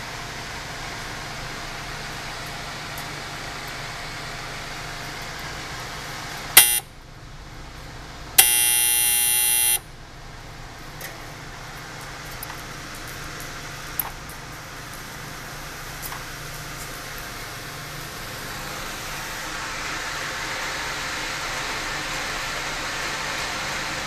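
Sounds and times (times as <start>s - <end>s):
oven fan hum: 0.0s - 24.0s
oven timer buzzer: 6.5s - 7.0s, 8.4s - 9.9s.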